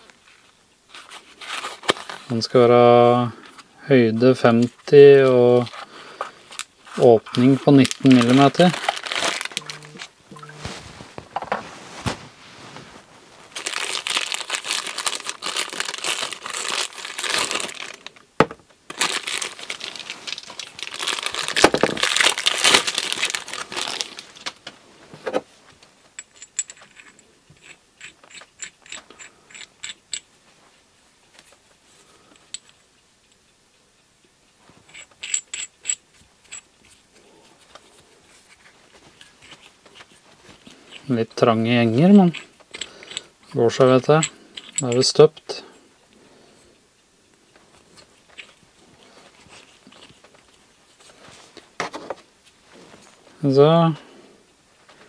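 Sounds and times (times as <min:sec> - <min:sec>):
plastic bag crinkling and tearing: 0:06.9 - 0:12.3, 0:13.3 - 0:18.3, 0:18.9 - 0:24.6
light clicks of metal parts: 0:42.2 - 0:45.5.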